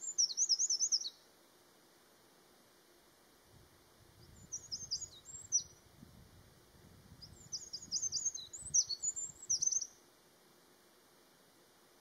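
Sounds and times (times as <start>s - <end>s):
wren singing trills: 0.0s - 1.2s, 4.2s - 5.8s, 7.2s - 10.0s.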